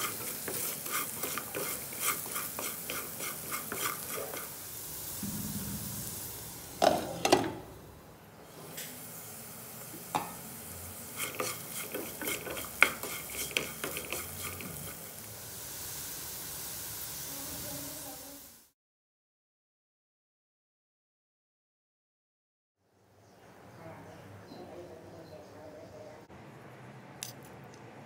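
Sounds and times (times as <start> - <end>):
wooden spatula scraping pan: 0.0 - 4.6, 11.1 - 15.1
potatoes sizzling in oil: 0.0 - 5.3, 8.4 - 18.8.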